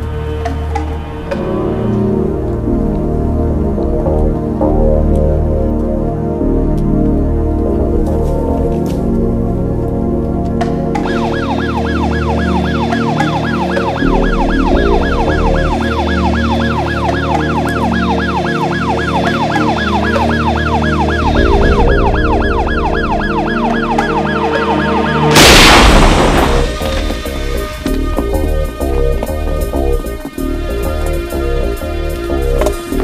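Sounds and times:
background music: 0.0 - 33.0
yelp siren: 11.0 - 25.4
loud explosion blast: 25.1 - 29.6.

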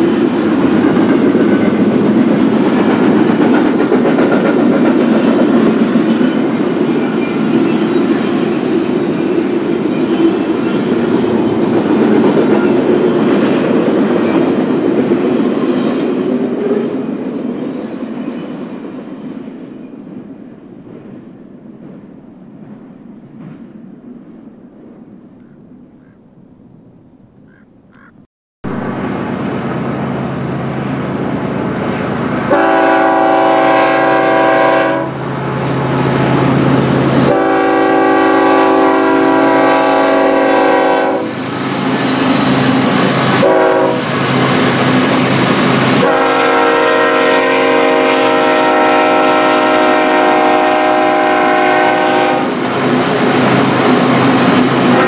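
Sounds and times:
diesel locomotive engine rumble: 0.0 - 18.8, 28.6 - 55.0
train air horn blasts: 32.5 - 35.2, 37.3 - 41.4, 43.3 - 44.2, 45.9 - 52.6.

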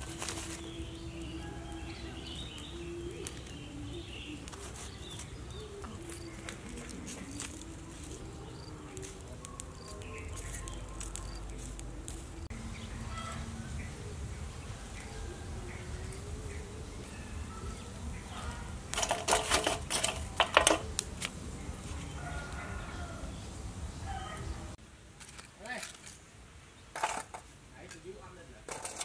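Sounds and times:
charcoal clattering: 0.0 - 12.4, 18.8 - 22.5, 25.2 - 26.2, 26.9 - 29.0.

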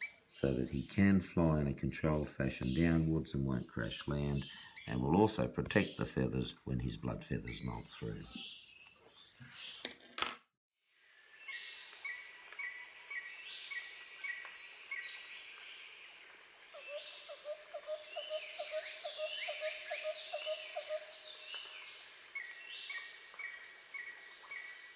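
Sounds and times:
high insect sound: 11.0 - 24.9.

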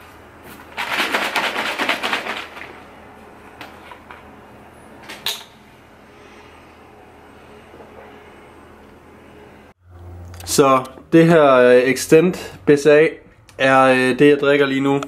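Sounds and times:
shaker bottle rattling slosh: 0.7 - 2.8.

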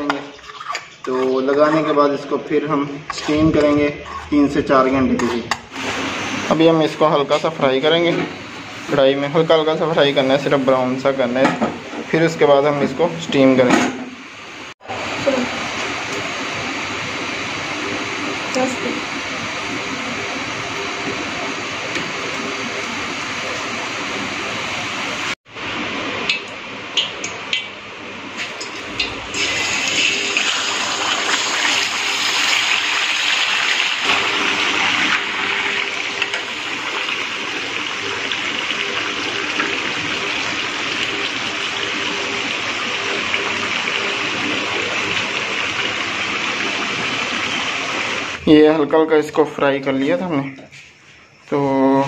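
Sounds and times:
meat sizzling in hot oil: 28.3 - 48.4.

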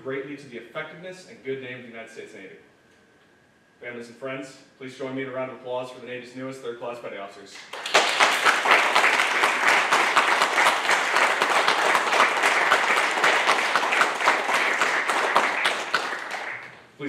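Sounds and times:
audience applauding: 7.6 - 16.8.

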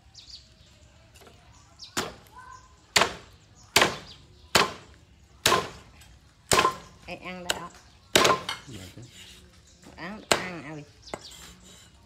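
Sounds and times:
cleaver chopping on wooden block: 2.0 - 2.3, 2.9 - 5.9, 6.5 - 6.9, 7.5 - 8.7, 10.3 - 11.4.

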